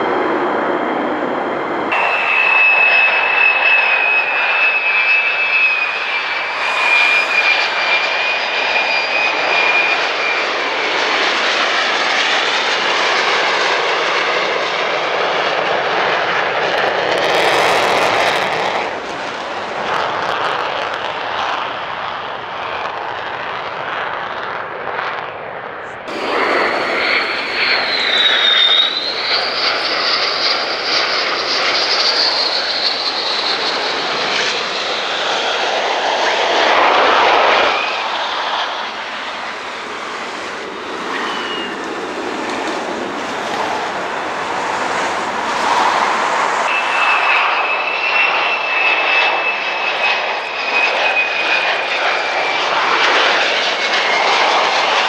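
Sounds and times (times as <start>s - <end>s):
fighter jets landing whine: 0.0s - 12.2s, 26.1s - 53.6s
distant fighter jet: 0.0s - 55.0s
fighter jet takeoff roar: 0.0s - 55.0s
jet engine whistle: 1.5s - 14.4s, 26.0s - 55.0s.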